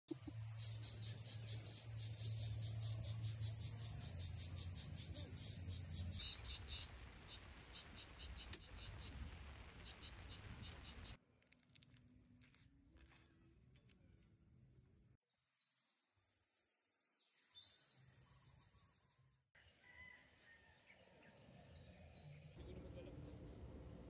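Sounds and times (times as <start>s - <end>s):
insects buzzing: 0.1s - 11.2s.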